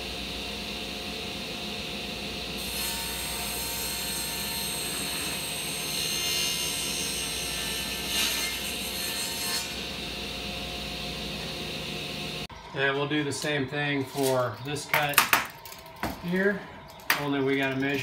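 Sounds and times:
saw cutting wooden panel: 2.6 - 10.0.

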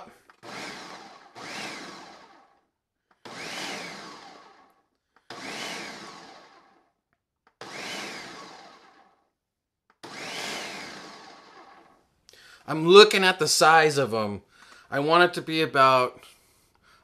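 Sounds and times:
blender pulsing: 0.0 - 9.3, 9.9 - 12.0.

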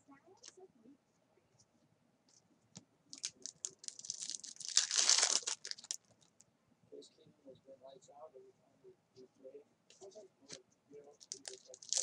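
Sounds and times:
foil wrapper crackling: 3.2 - 6.0, 11.2 - 12.0.

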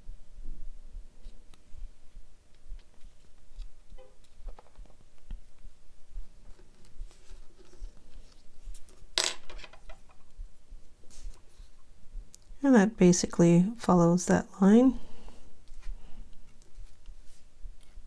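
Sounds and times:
hook clattering on wooden desk: 9.2 - 10.2.

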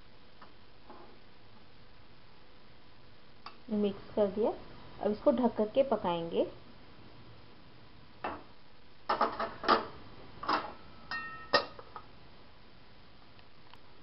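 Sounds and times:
metal lid clanking on pot: 10.5 - 12.0.

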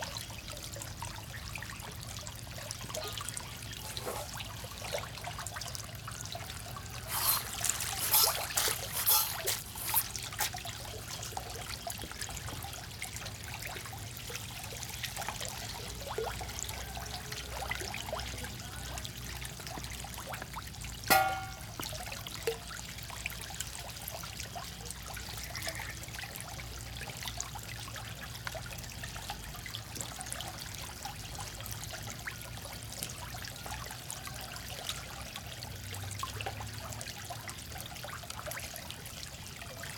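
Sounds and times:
frogs splashing in water: 6.6 - 11.3
sharp squeak: 7.1 - 10.2.

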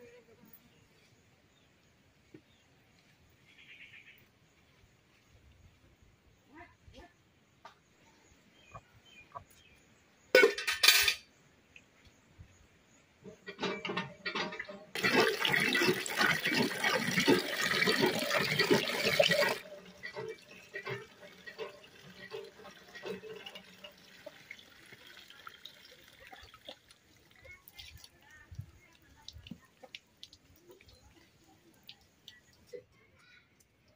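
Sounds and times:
water gushing into metal pail: 13.4 - 32.7
hand pump strokes: 15.0 - 26.7.

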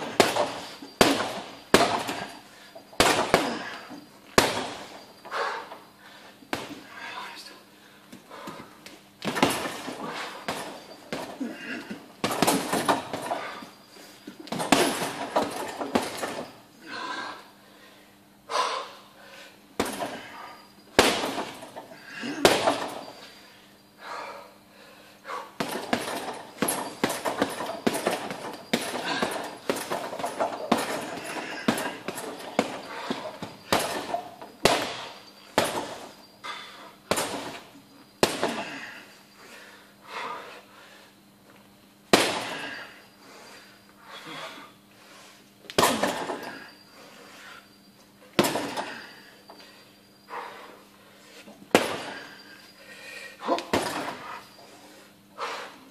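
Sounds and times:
gloves punching heavy bag: 0.0 - 5.2, 9.2 - 13.6, 14.4 - 16.5, 19.8 - 20.3, 21.0 - 23.2, 25.6 - 36.2, 37.1 - 38.9, 42.1 - 42.8, 45.8 - 46.5, 48.4 - 49.0, 51.7 - 52.2, 53.4 - 54.4.

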